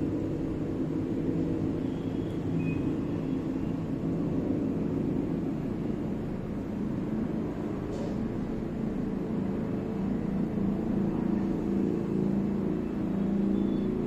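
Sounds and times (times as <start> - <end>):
low droning hum: 0.0 - 14.0.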